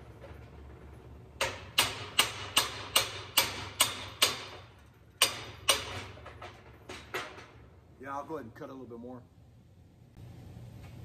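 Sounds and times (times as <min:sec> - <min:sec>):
hammer striking metal: 0:01.4 - 0:06.2.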